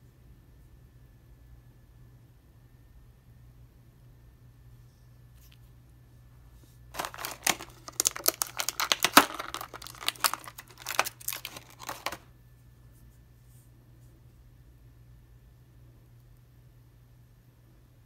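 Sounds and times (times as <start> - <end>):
plastic blister tray crinkling: 6.9 - 12.3.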